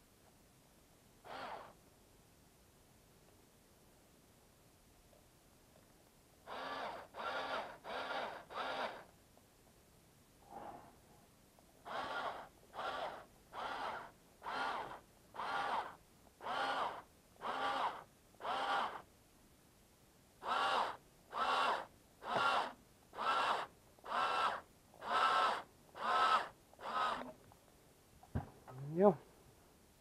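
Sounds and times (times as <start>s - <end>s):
electric screwdriver whirring: 1.3s - 1.7s, 6.5s - 9.1s, 11.9s - 19.0s, 20.5s - 27.3s.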